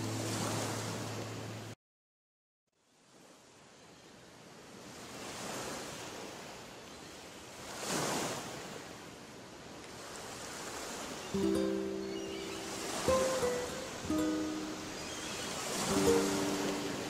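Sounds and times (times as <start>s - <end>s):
sea waves washing in: 0.0s - 1.8s, 4.4s - 17.0s
music: 11.4s - 17.0s.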